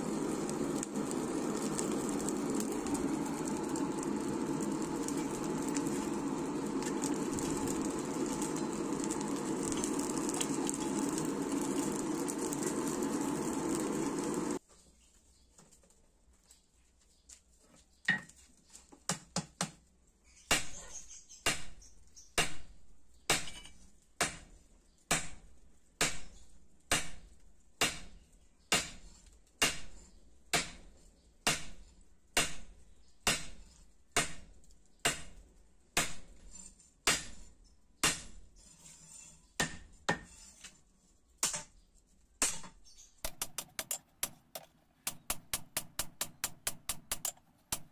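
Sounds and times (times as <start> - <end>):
forge fire rushing: 0.0 - 14.6.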